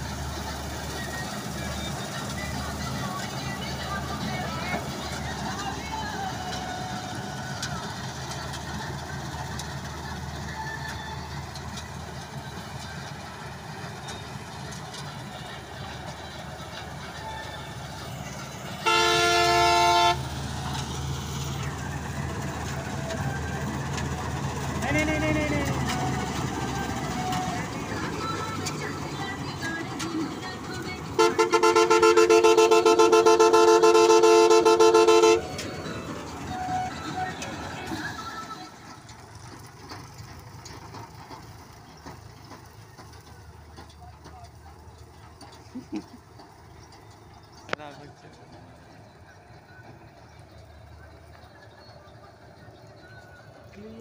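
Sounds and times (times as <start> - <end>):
combine harvester engine drone: 0.0 - 54.0
loud horn: 18.8 - 20.3, 31.2 - 35.5.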